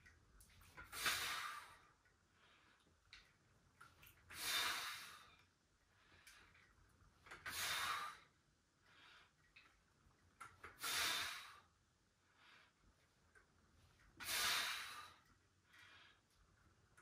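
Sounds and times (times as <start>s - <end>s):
man breathing: 14.0s - 16.4s.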